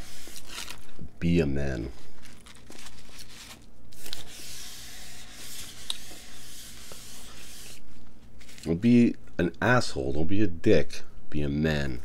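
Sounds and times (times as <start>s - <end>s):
paper wrapper rustling: 0.0s - 1.0s, 1.9s - 4.7s, 8.4s - 8.7s.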